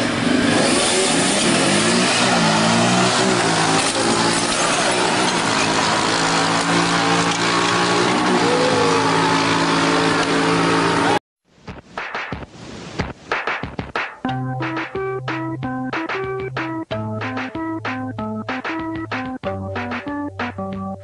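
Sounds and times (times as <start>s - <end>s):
motorcycle engine revving: 0.0s - 11.2s.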